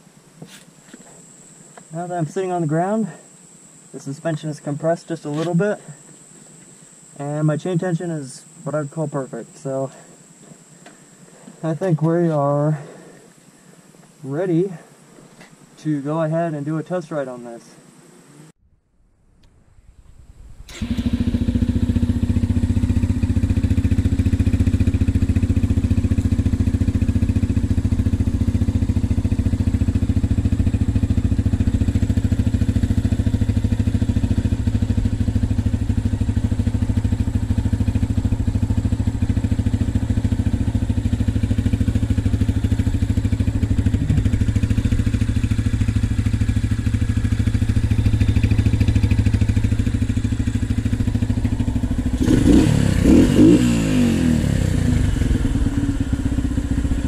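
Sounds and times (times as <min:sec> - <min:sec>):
motorcycle engine running: 0:20.3 - 0:57.0.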